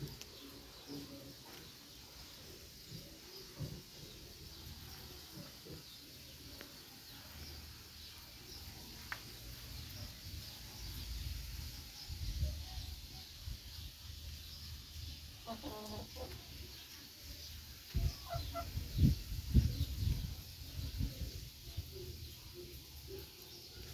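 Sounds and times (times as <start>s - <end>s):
chickens clucking: 15.3s - 20.4s.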